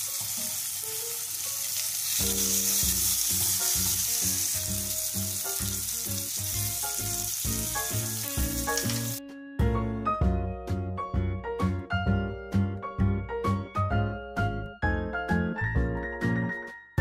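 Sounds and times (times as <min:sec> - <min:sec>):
fish sizzling in oil: 0:00.0 - 0:09.2
background music: 0:00.1 - 0:17.0.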